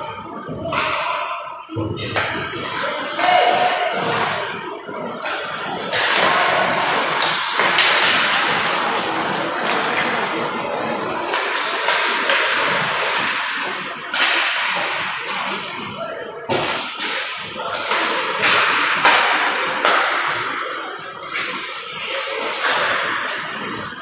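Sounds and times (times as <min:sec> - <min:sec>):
hockey sticks and pucks clacking: 0:00.0 - 0:24.0
skates scraping on ice: 0:05.2 - 0:13.6.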